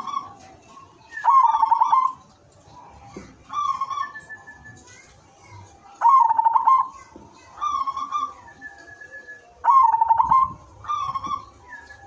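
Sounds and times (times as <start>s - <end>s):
dove cooing: 1.2s - 2.2s, 6.0s - 7.0s, 9.6s - 12.0s.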